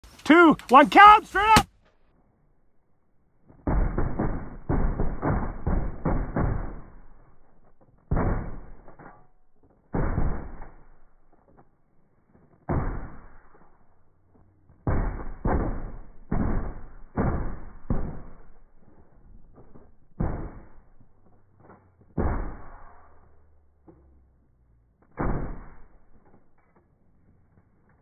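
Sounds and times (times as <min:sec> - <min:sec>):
shotgun shots with echo: 0:03.6 - 0:07.4.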